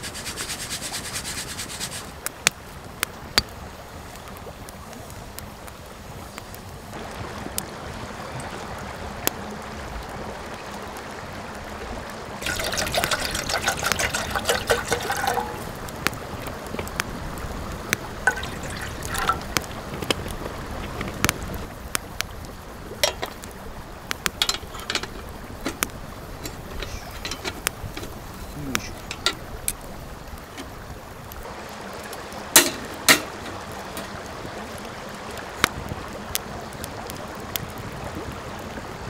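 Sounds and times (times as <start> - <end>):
campfire crackling and popping: 0.0 - 39.0
water pouring into metal kettle: 12.4 - 16.1, 18.0 - 19.9, 23.0 - 23.5, 24.2 - 29.8, 32.5 - 34.2.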